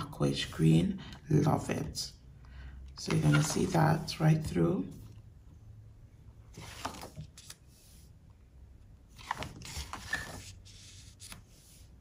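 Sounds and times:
notebook pages turning: 3.0 - 4.0, 6.6 - 7.7, 9.1 - 11.8.

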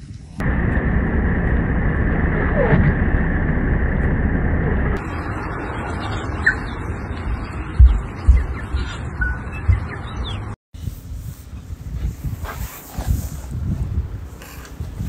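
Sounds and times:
outdoor air: 0.0 - 15.0
wind and road noise rumble: 0.0 - 15.0
bird chirp: 5.0 - 10.6.

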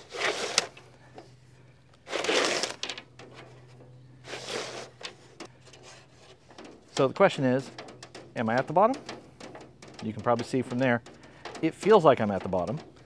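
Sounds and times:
fish tape scraping and sliding: 0.0 - 0.8, 2.0 - 3.5, 4.2 - 6.8.

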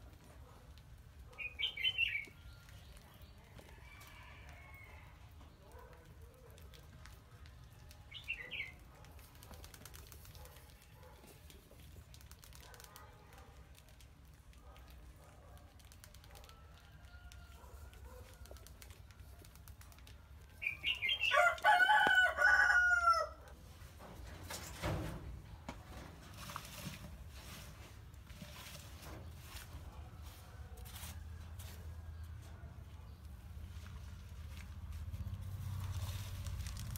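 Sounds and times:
rooster crowing: 21.2 - 23.4.

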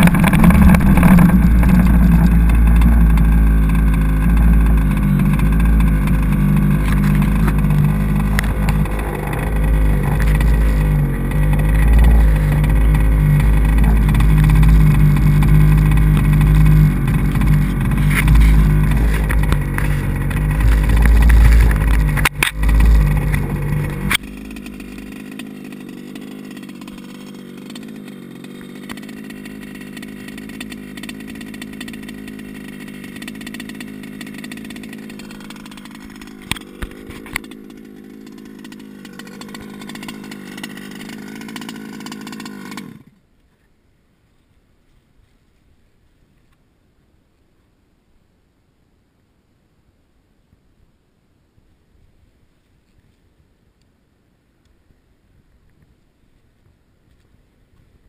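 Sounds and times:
quiet steady hum: 0.0 - 25.0
small two-stroke engine running: 0.0 - 43.3.

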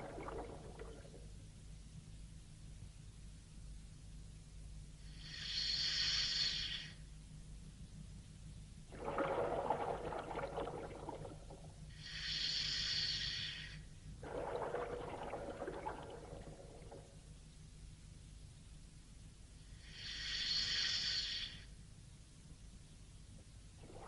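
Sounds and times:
exhaled bubbles gurgling underwater: 0.0 - 1.3, 8.9 - 11.8, 14.2 - 17.2, 23.8 - 24.0
steady low hum: 0.0 - 20.4
regulator inhalation hiss: 5.0 - 7.0, 12.0 - 13.8, 19.7 - 21.7.

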